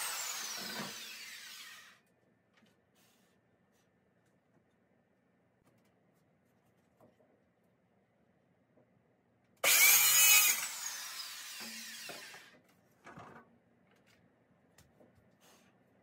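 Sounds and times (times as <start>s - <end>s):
circular saw cutting wood: 0.0s - 2.0s, 9.6s - 12.6s.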